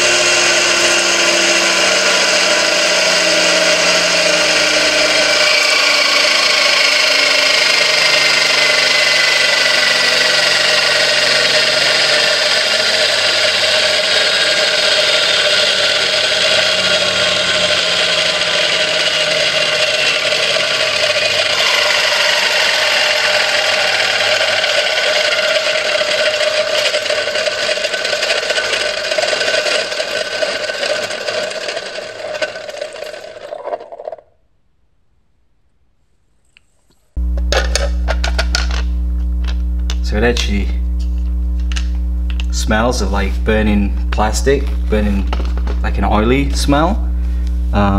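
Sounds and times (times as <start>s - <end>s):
gears whirring and rattling: 0.0s - 34.3s.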